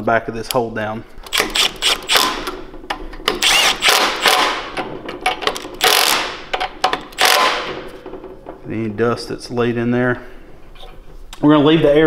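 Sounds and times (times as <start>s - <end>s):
cordless power tool whirring: 1.3s - 2.5s, 3.3s - 4.6s.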